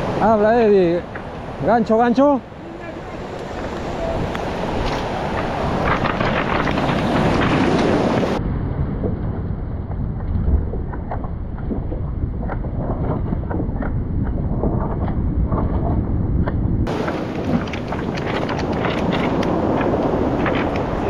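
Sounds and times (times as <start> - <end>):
surf washing onto beach: 0.0 - 8.4, 16.9 - 21.0
wind noise on microphone: 0.0 - 21.0
beach stones knocking together: 16.9 - 21.0.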